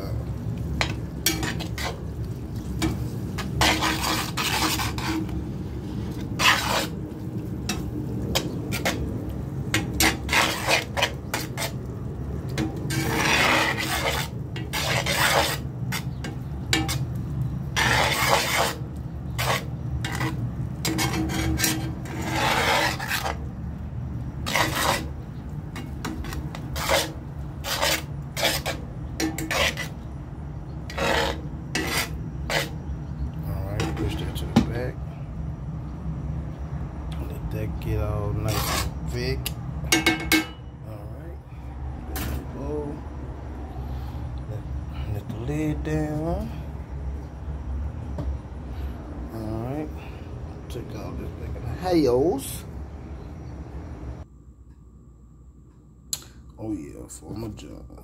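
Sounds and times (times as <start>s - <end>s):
light sizzle: 0.0s - 34.7s
steady low hum: 0.0s - 58.0s
utensil scraping skillet: 0.3s - 23.6s, 24.2s - 33.2s, 33.8s - 34.5s, 38.2s - 39.2s.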